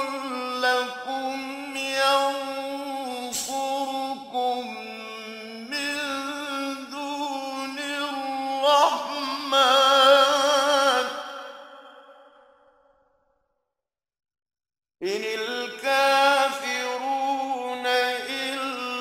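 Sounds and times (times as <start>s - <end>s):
man chanting recitation: 0.0s - 11.4s, 15.0s - 19.0s.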